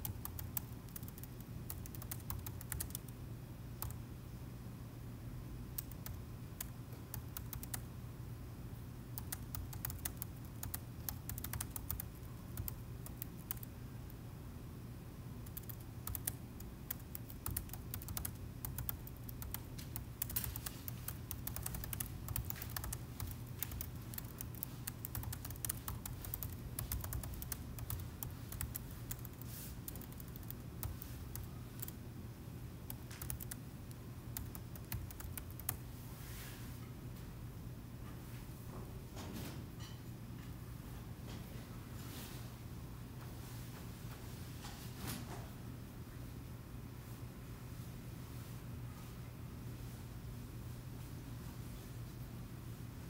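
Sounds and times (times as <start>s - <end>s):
typing on laptop keyboard: 0.0s - 3.2s, 3.8s - 4.0s, 5.8s - 7.9s, 9.2s - 13.7s, 15.4s - 32.0s, 32.8s - 35.8s
steady low hum: 0.0s - 53.0s.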